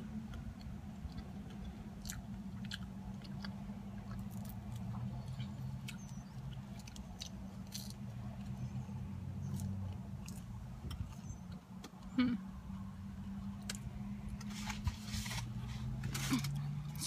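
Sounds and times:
person chewing pizza: 0.1 - 8.8, 9.4 - 12.4.

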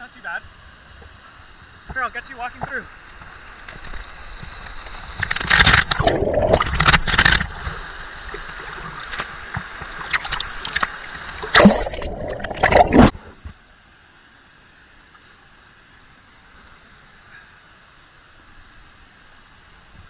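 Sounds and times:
waterfall water pouring and splashing: 0.2 - 13.3.

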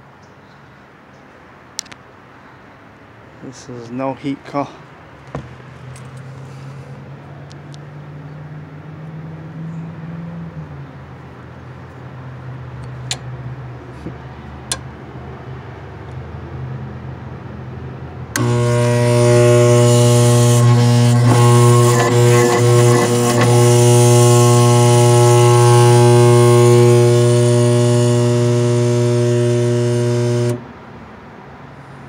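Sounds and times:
sharp clicks: 12.8 - 13.3, 14.7 - 14.9
loud electrical buzzing hum: 18.3 - 30.7
steady low hum: 18.4 - 30.7.

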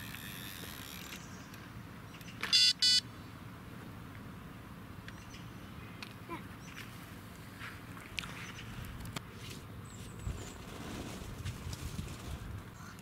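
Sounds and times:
bite alarm short beeps: 2.5 - 3.0.

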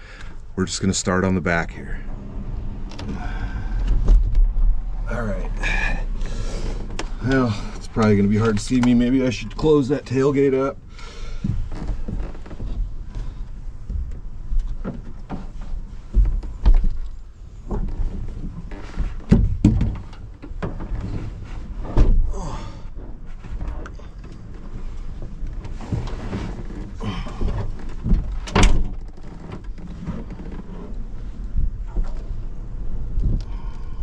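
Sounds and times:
knocks and thumps: 3.8 - 4.8, 17.7 - 22.3, 25.6 - 30.6.

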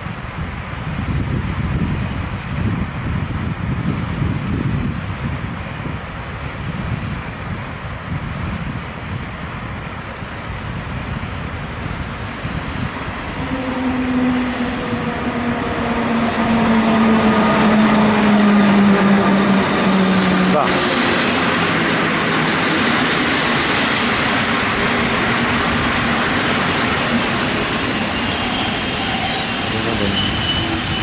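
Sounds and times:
train low rumble: 0.0 - 31.0
locomotive traction whine: 12.2 - 31.0.

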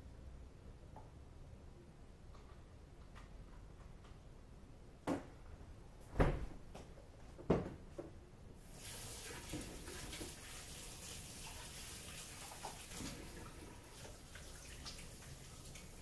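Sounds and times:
tap running with steady hiss: 8.6 - 16.0.

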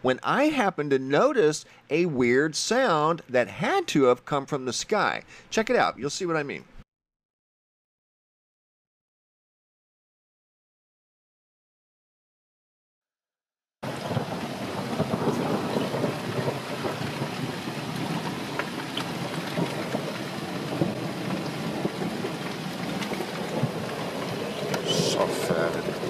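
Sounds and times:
rain-like crackling: 13.8 - 26.0
thunder rumbling: 13.8 - 26.0.

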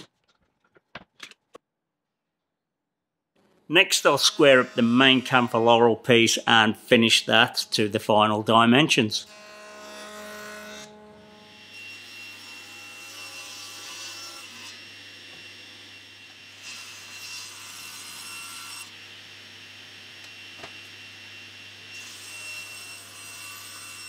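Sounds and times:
saw cutting wood: 3.9 - 7.9, 9.2 - 24.0
table saw running: 4.0 - 6.0.

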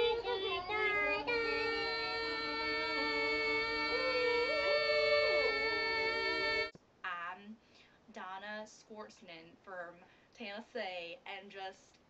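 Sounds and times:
voices humming a chord: 0.0 - 6.7.

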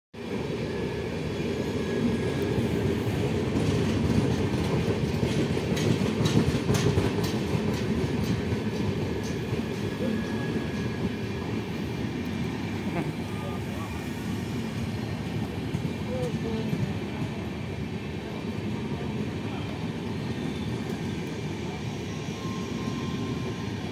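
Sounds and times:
train rumbling past: 0.2 - 23.9
wheels clacking over rail joints: 3.4 - 11.2.

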